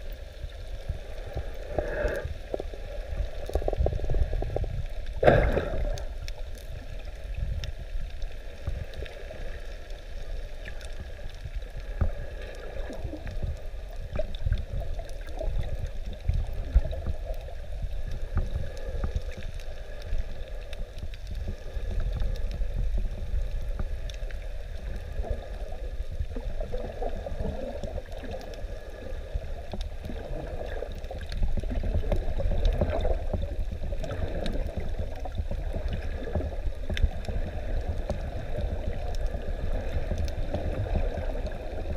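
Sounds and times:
gurgling water: 0:00.0 - 0:41.9
underwater low rumble: 0:00.0 - 0:41.9
faint clicks: 0:00.1 - 0:41.9.

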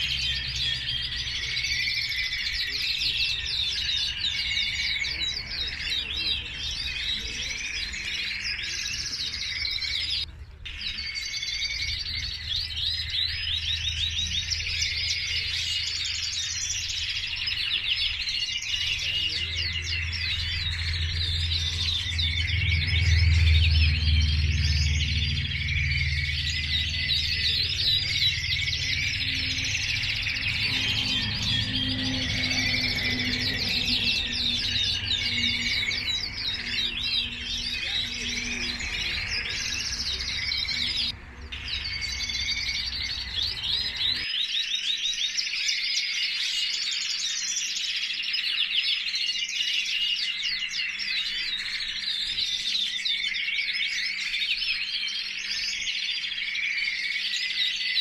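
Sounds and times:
canaries singing and trilling: 0:00.0 - 0:58.0
low hum: 0:19.2 - 0:44.2.

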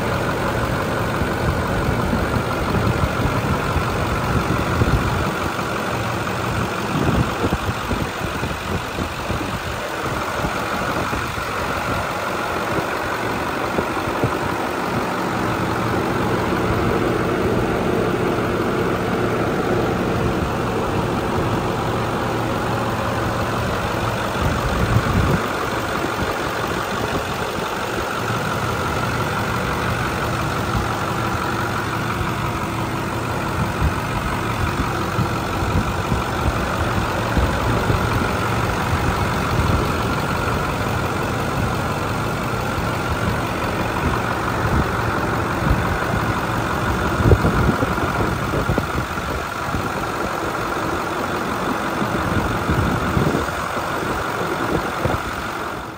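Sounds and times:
diesel engine idling: 0:00.0 - 0:55.9.

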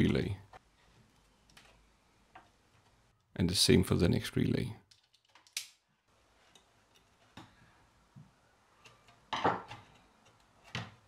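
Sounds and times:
wiring tools clicking and knocking: 0:04.8 - 0:05.8.

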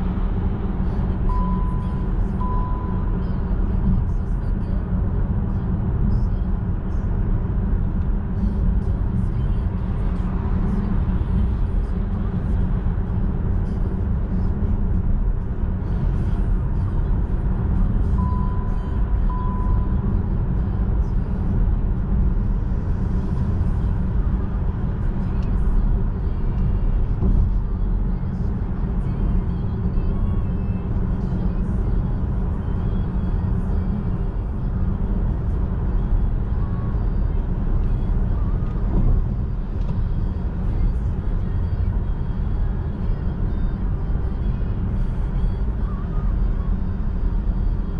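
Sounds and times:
road and wind noise in car: 0:00.0 - 0:47.9
short electronic beeps: 0:01.2 - 0:03.4, 0:18.0 - 0:20.1.

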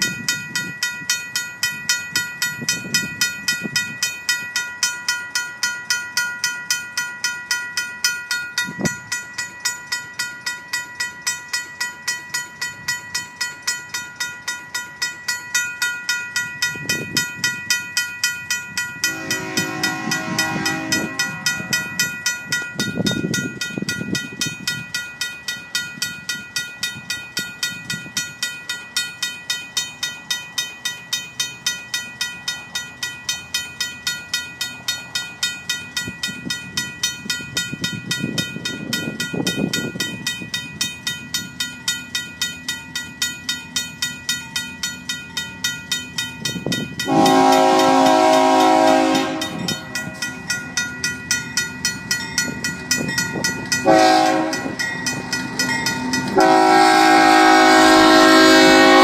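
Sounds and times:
mechanical crossing bell ringing: 0:00.0 - 0:58.2
train horn chord: 0:19.0 - 0:21.8, 0:47.1 - 0:49.9, 0:53.8 - 0:54.8, 0:56.4 - 0:59.0.

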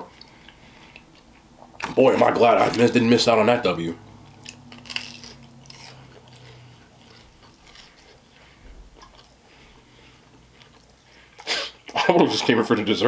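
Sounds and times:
chewing crispy pastry: 0:04.2 - 0:12.6.

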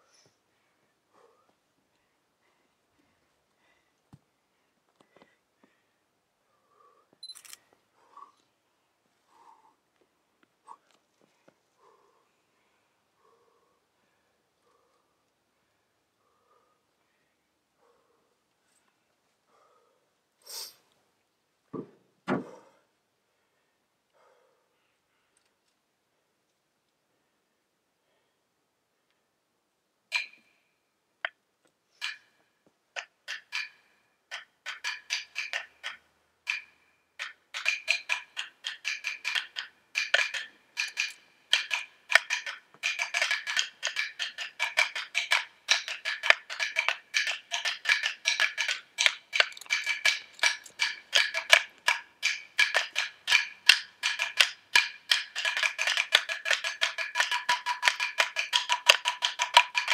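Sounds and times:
wooden sticks knocking together: 0:30.1 - 0:30.4, 0:33.0 - 0:59.9.

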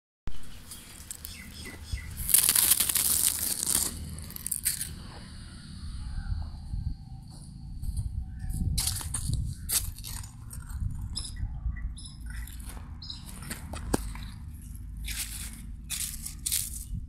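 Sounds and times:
dry leaves crackling: 0:00.4 - 0:05.0, 0:08.8 - 0:10.8, 0:13.2 - 0:17.0
low rumble: 0:03.1 - 0:17.0.

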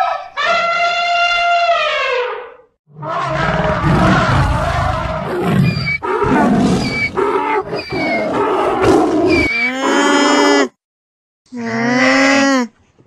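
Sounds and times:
tiger roaring: 0:02.9 - 0:10.6
donkey braying: 0:03.0 - 0:10.7.

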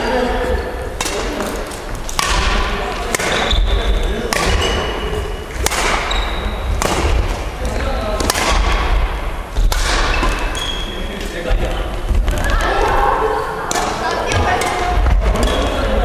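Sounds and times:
racket hitting shuttlecock: 0:01.0 - 0:07.6, 0:08.2 - 0:10.6, 0:13.7 - 0:15.7.

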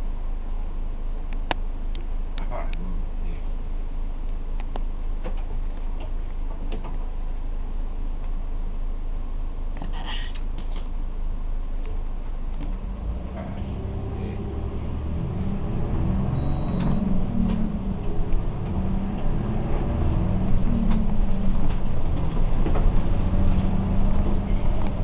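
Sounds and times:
bus diesel engine accelerating: 0:11.3 - 0:25.0.

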